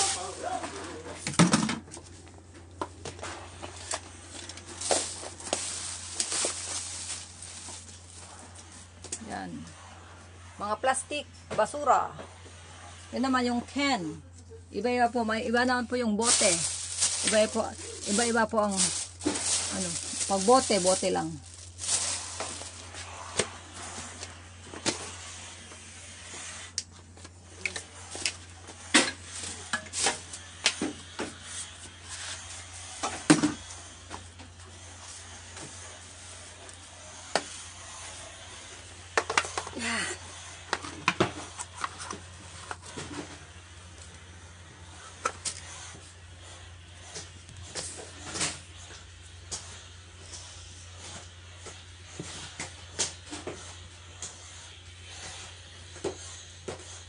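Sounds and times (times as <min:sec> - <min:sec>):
recyclables knocking and clattering: 0:01.2 - 0:02.0
steady low hum: 0:02.1 - 0:57.0
rustling: 0:03.7 - 0:08.7, 0:15.4 - 0:23.9.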